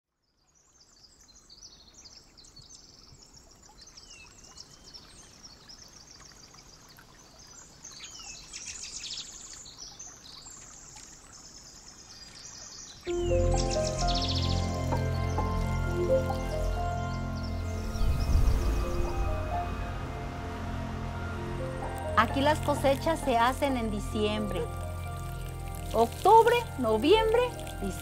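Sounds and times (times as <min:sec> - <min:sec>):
soft steady hiss: 0:00.3 - 0:28.0
small birds chirping: 0:00.5 - 0:19.8, 0:22.1 - 0:28.0
whistled slides: 0:13.1 - 0:22.0.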